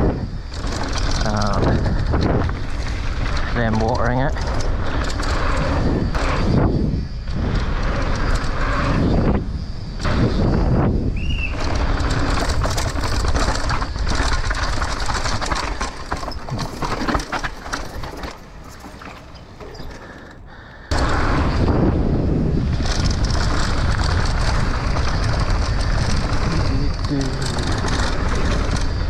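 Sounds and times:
wind rushing over mic: 0.0s - 18.4s, 20.9s - 29.0s
bike rattling: 0.0s - 29.0s
tyres rolling over rough dirt: 0.0s - 29.0s.

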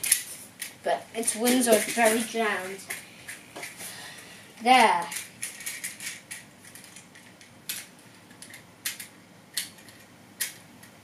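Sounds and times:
plastic toy joints clicking: 4.8s - 10.9s.

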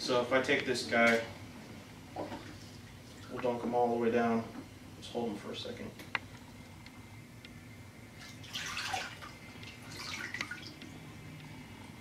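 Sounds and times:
water sloshing and splashing: 2.2s - 3.7s, 8.2s - 11.0s
water dripping: 8.2s - 11.5s.

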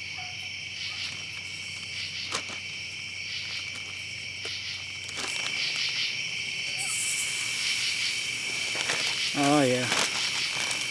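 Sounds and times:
night insects trilling: 0.0s - 10.9s
plastic bag crinkling: 5.0s - 5.9s, 8.5s - 10.9s.

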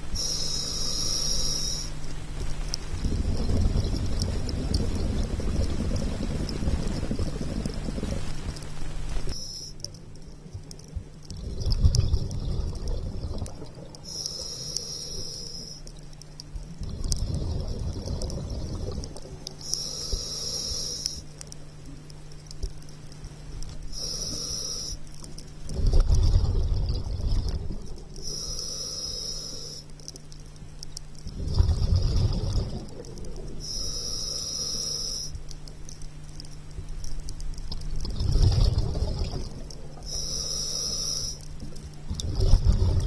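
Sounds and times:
steady low hum: 0.0s - 43.0s
scuba regulator inhale hiss: 0.2s - 2.0s, 14.1s - 15.8s, 19.6s - 21.3s, 23.9s - 25.0s, 28.2s - 29.9s, 33.6s - 35.4s, 40.0s - 41.5s
exhaust bubbles rumbling: 2.9s - 9.3s, 11.0s - 14.1s, 16.7s - 19.5s, 25.6s - 28.2s, 31.2s - 33.7s, 38.0s - 40.8s, 41.5s - 43.0s.

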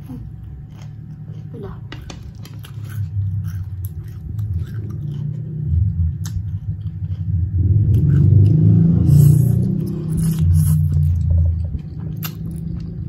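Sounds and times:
chewing and mouth sounds: 0.0s - 13.0s
slurping noodles: 8.8s - 11.2s.

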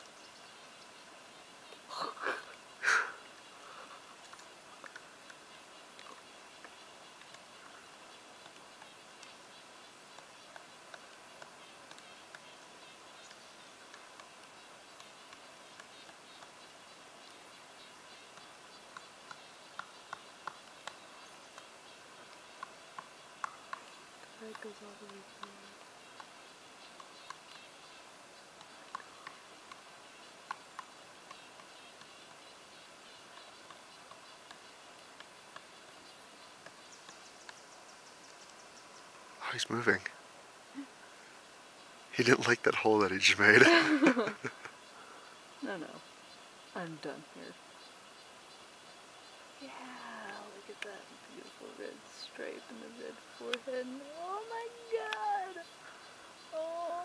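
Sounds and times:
steady hiss: 0.0s - 57.0s
woodpecker tapping on tree: 1.6s - 27.7s, 28.4s - 32.5s, 33.1s - 39.2s
woodpecker pecking tree trunk: 10.1s - 16.6s, 18.2s - 27.6s.

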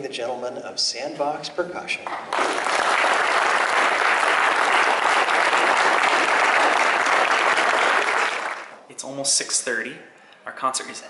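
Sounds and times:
audience applauding: 2.1s - 8.7s.

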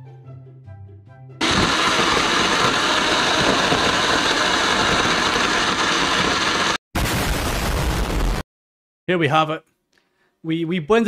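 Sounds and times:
blender motor running: 1.4s - 6.8s.

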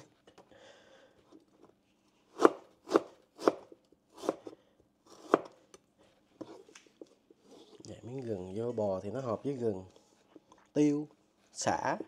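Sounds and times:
knife chopping on cutting board: 2.3s - 4.5s, 5.1s - 5.6s.

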